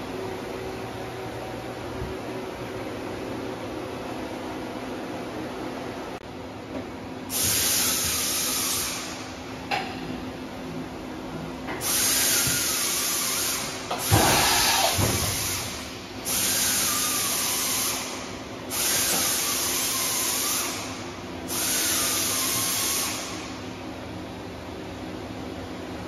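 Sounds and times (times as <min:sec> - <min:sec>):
hissing bursts: 0:11.8 - 0:20.9.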